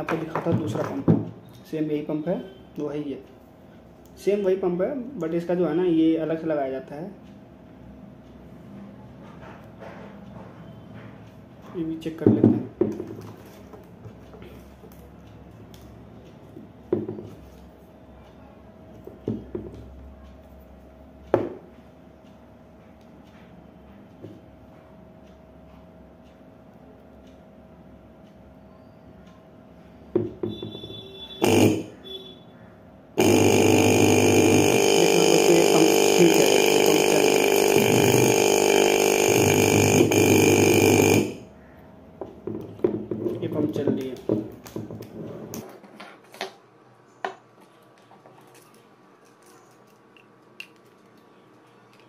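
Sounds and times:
knocks on wooden tabletop: 0:00.4 - 0:01.3, 0:12.2 - 0:13.2, 0:16.9 - 0:17.3, 0:19.3 - 0:19.8, 0:21.4 - 0:21.6, 0:30.2 - 0:30.8, 0:42.2 - 0:45.1
vending machine pump buzzing: 0:29.8 - 0:45.6.

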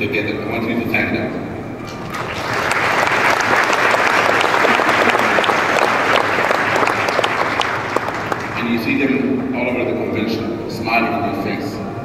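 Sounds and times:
audience applauding: 0:02.0 - 0:08.9.

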